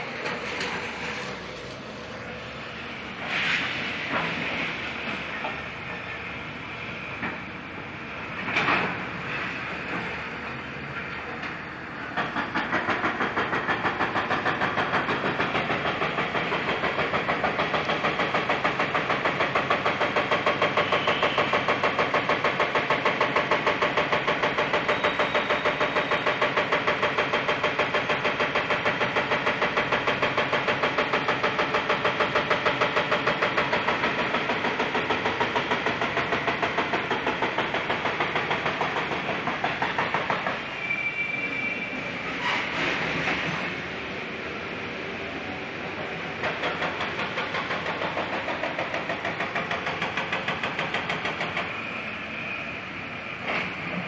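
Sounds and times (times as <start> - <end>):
construction machinery pounding: 4.1 - 40.7, 45.7 - 52.2.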